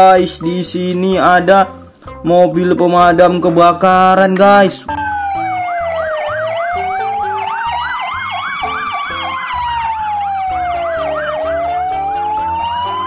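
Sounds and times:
siren wailing: 0:04.9 - 0:13.0
siren yelping: 0:04.9 - 0:13.0.

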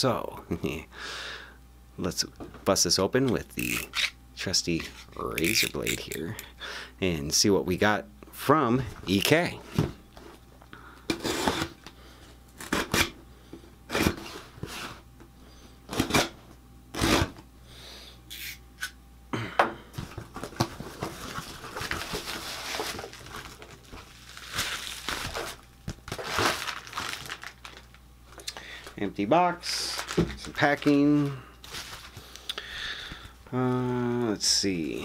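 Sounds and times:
blade slitting packing tape: 0:03.6 - 0:04.2, 0:12.6 - 0:13.2, 0:15.9 - 0:17.4
plastic packing crinkling: 0:20.0 - 0:29.0, 0:29.6 - 0:32.5.

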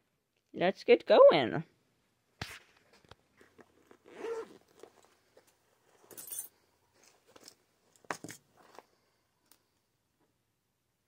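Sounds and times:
cloth rustling: 0:02.5 - 0:09.2
zipper: 0:03.4 - 0:05.2.

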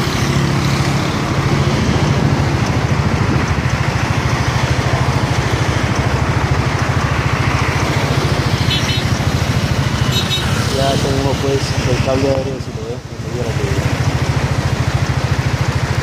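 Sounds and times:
road and wind noise: 0:00.0 - 0:16.0
vehicle engine running: 0:00.0 - 0:16.0.

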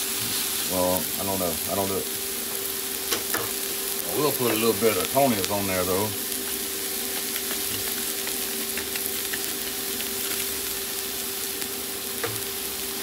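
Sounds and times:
vegetables sizzling on a griddle: 0:00.0 - 0:13.0
small pops and crackles: 0:06.5 - 0:10.5.

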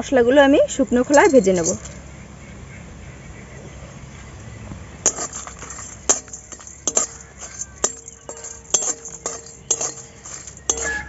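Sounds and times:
pan ringing: 0:00.9 - 0:02.0, 0:05.0 - 0:11.0
metal spatula scraping a pan: 0:05.1 - 0:11.0.

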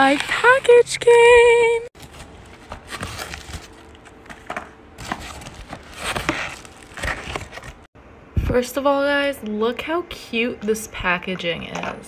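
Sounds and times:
plastic mailer crinkling: 0:00.0 - 0:01.2, 0:02.0 - 0:07.9.

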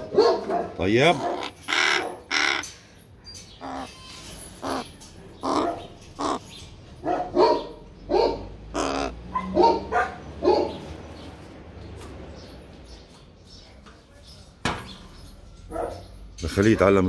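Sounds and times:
crow cawing: 0:01.2 - 0:02.8, 0:03.6 - 0:04.0, 0:04.6 - 0:06.5, 0:08.7 - 0:09.2.

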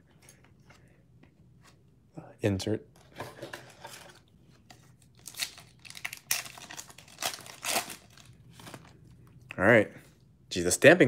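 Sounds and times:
foil wrapper tearing and crinkling: 0:05.1 - 0:08.9.

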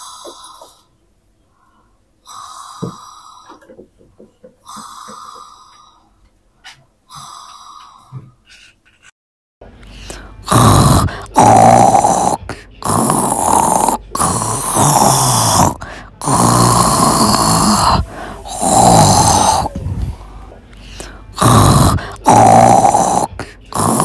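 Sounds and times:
loud snoring: 0:10.4 - 0:20.2, 0:21.0 - 0:24.0.

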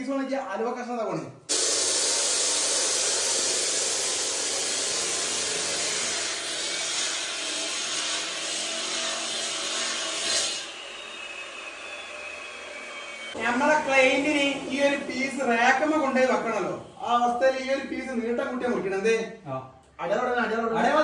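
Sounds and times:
electric cutter grinding concrete: 0:01.5 - 0:13.4.

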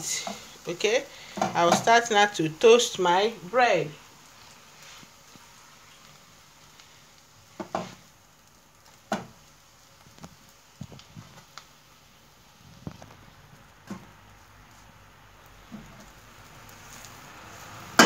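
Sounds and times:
bread sizzling in pan: 0:00.0 - 0:18.0
taps and knocks in pan: 0:07.6 - 0:08.0.

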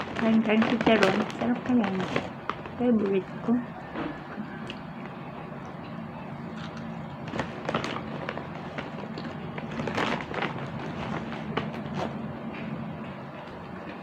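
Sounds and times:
plastic snack bag crinkling: 0:00.0 - 0:03.2, 0:06.6 - 0:12.2
crunchy snack chewing: 0:06.5 - 0:12.1.

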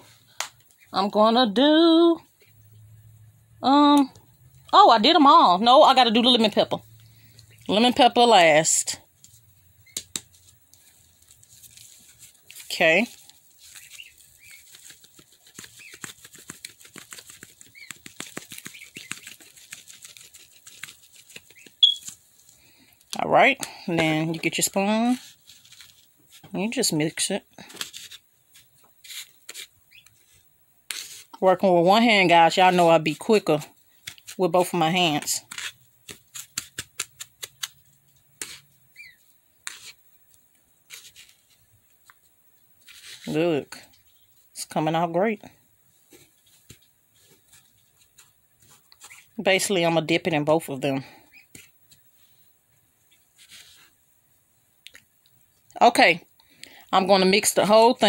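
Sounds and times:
pepper shaker rattling: 0:10.2 - 0:23.2
short squeak: 0:21.8 - 0:22.0.

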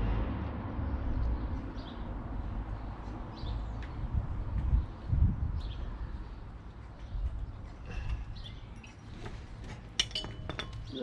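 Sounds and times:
bird chirp: 0:04.7 - 0:09.4.

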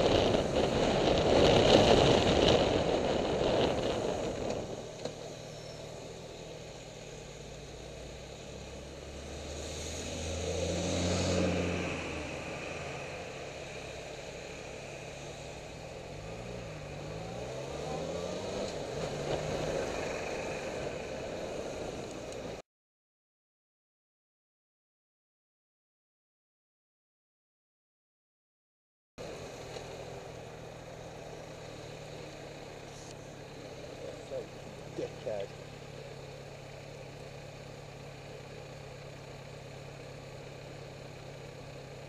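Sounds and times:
motorcycle engine running: 0:00.0 - 0:10.2, 0:29.2 - 0:42.0
wind and road noise: 0:00.0 - 0:22.6, 0:29.2 - 0:42.0.

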